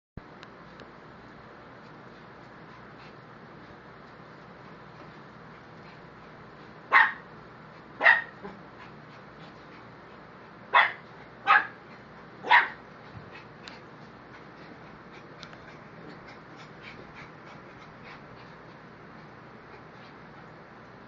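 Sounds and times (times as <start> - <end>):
dog barking: 6.9 - 7.3, 8.0 - 8.5, 10.7 - 11.8, 12.4 - 12.8.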